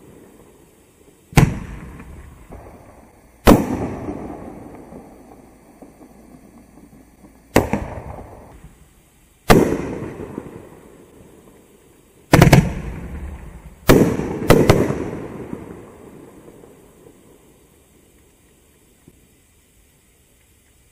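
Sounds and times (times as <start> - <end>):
firework bangs with rolling echo: 1.3 - 8.8, 9.4 - 17.6.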